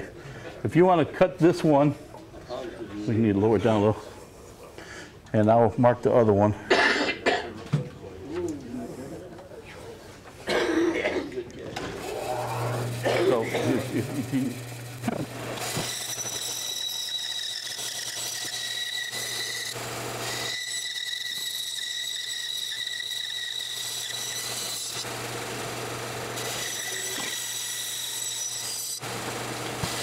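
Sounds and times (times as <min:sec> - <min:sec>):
sped-up bandsaw whine: 0:12.0 - 0:30.0.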